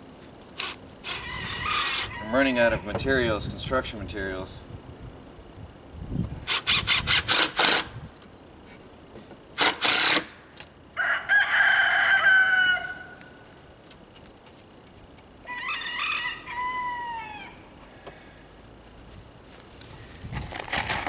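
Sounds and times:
cordless drill driving screws: 0:00.6 - 0:02.1, 0:06.4 - 0:07.9, 0:09.6 - 0:10.3
rooster crowing: 0:01.2 - 0:02.8, 0:11.0 - 0:13.4, 0:15.4 - 0:17.7.

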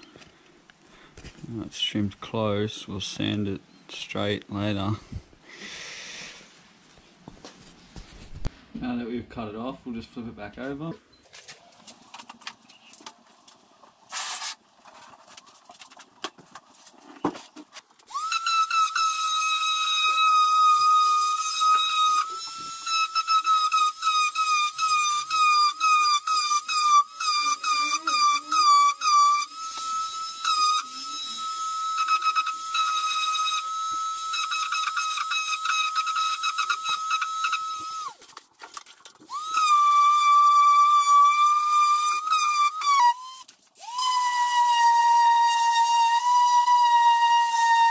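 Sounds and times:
power tool motor whining: 0:18.1 - 0:38.2.

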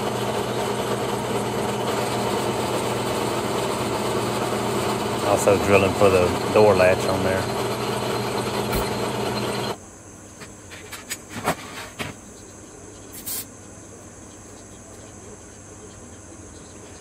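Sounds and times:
drill press drilling steel: 0:00.0 - 0:09.8
brief scrape: 0:13.2 - 0:13.5.

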